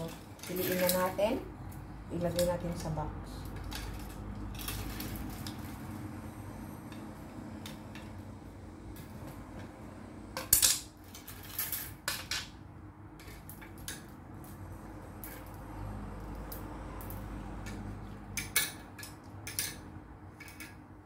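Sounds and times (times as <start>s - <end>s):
clothes hangers clinking: 0.0s - 1.4s.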